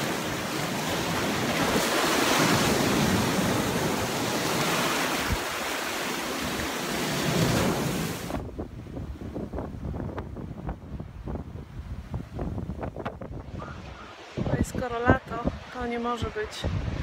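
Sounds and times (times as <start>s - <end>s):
surf breaking against cliff: 0.0s - 8.6s.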